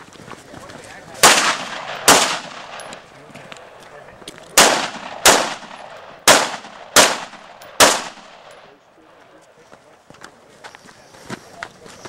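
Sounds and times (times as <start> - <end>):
rifle shots: 1.2 - 3.8, 4.5 - 8.7.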